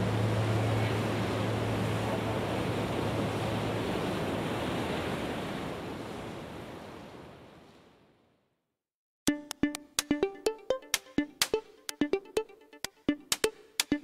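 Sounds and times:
plucked music notes: 9.3s - 14.0s.

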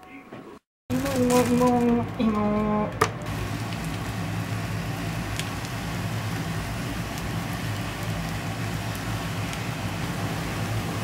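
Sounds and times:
oil popping: 3.0s - 11.0s
batter sizzling in oil: 3.3s - 11.0s.

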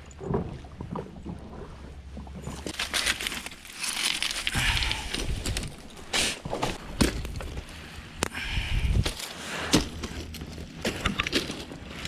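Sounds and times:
gravel crunching: 2.4s - 12.0s
stones knocking and clacking: 2.5s - 8.3s, 9.0s - 12.0s.

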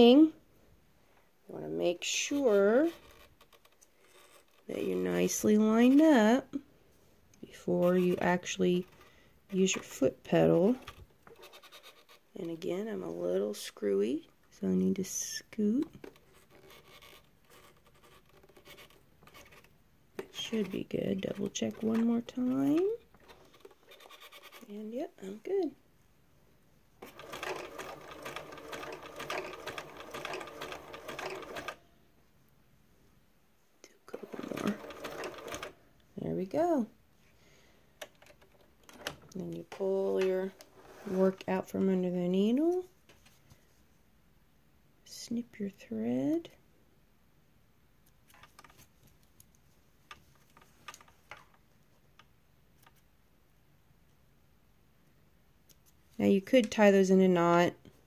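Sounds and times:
sewing machine stitches clicking: 10.7s - 12.2s, 20.2s - 24.7s, 27.0s - 31.8s, 34.1s - 35.8s
sewing machine motor hum: 27.0s - 31.8s, 34.1s - 35.8s.

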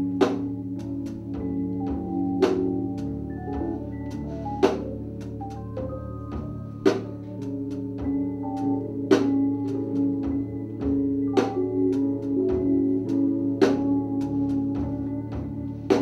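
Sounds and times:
drums: 0.0s - 16.0s
electric keyboard tones: 0.0s - 16.0s.

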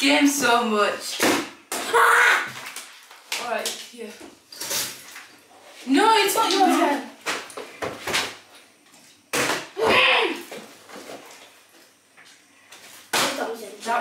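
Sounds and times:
person exclaiming: 9.8s - 10.5s.

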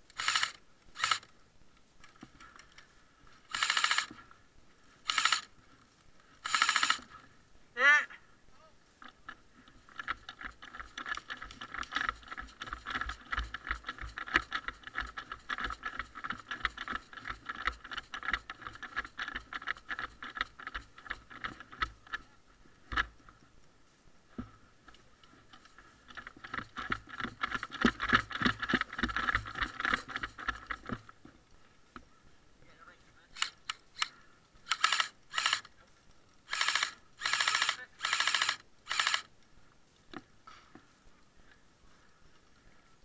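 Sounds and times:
camera and kit rattling: 0.1s - 1.3s, 3.5s - 4.2s, 5.0s - 5.5s, 6.4s - 7.2s, 9.0s - 23.4s, 25.2s - 31.3s, 33.4s - 35.8s, 36.5s - 39.3s.

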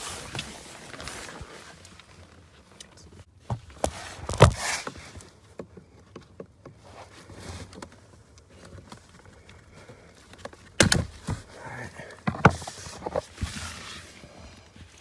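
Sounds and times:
rustling: 0.0s - 15.0s
plastic scrape: 3.8s - 5.1s.

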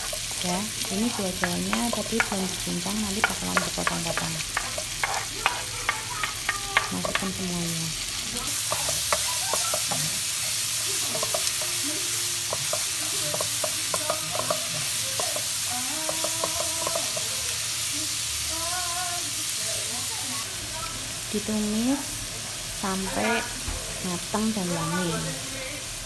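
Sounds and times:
spatula scraping and tapping pan: 0.0s - 7.5s, 8.5s - 11.7s, 12.4s - 17.4s
food sizzling in hot oil: 0.0s - 26.0s.

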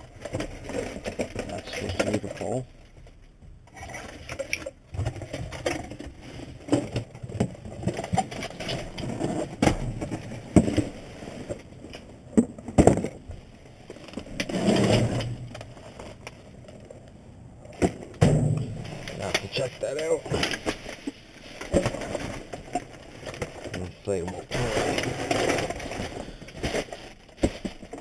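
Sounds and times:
knocks and scrapes: 0.0s - 28.0s
cardboard boxes being shifted: 14.0s - 16.2s, 17.8s - 28.0s.

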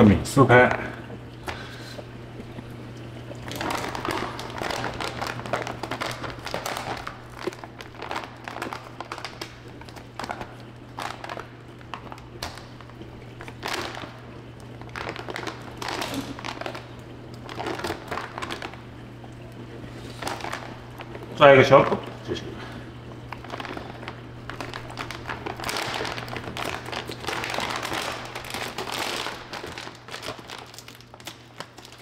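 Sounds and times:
plastic bag tearing and crinkling: 3.4s - 18.8s, 20.0s - 21.2s, 23.3s - 32.0s.

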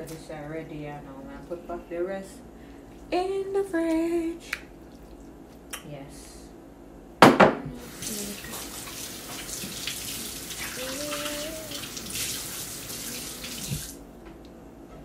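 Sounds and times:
tap water running into sink: 7.8s - 14.0s
hands rinsing under water: 7.9s - 14.0s.

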